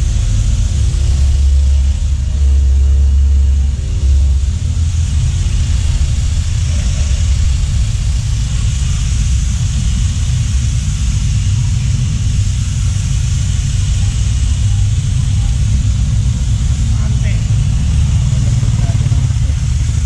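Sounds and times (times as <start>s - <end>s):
motor running with low rumble: 0.0s - 20.0s.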